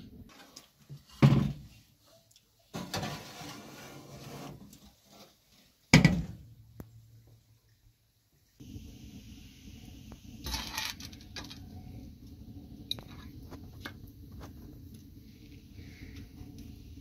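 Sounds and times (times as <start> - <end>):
baking pan scraping wire rack: 2.8 - 4.7.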